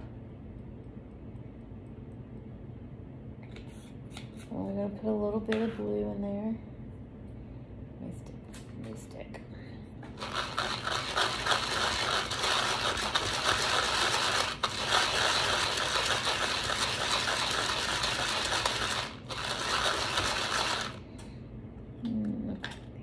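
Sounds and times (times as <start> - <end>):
plastic beads rattling in container: 10.2 - 21.0.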